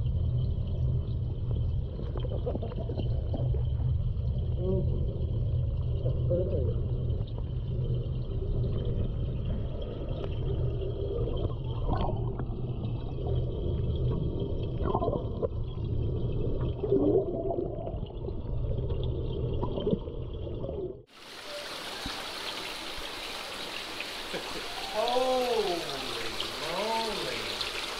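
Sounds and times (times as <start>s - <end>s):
muffled underwater rumble: 0.0s - 21.1s
water gurgles and bubbles: 0.0s - 22.4s
water spraying into tank: 21.1s - 27.9s.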